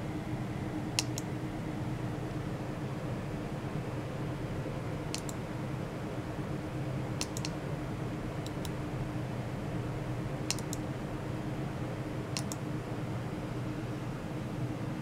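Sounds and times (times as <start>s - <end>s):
steady low hum: 0.0s - 15.0s
mouse buttons clicking: 1.0s - 1.3s, 5.1s - 5.4s, 7.2s - 7.6s, 10.5s - 10.8s, 12.4s - 12.6s.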